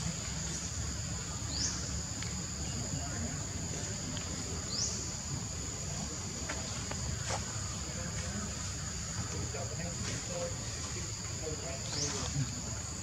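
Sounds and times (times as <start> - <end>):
cicadas buzzing: 0.0 - 13.0.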